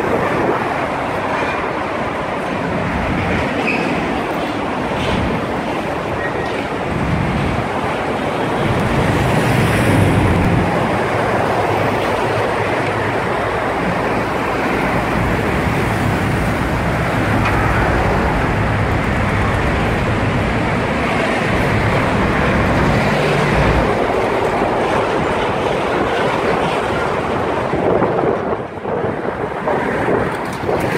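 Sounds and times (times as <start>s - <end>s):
road traffic noise: 0.0s - 30.9s.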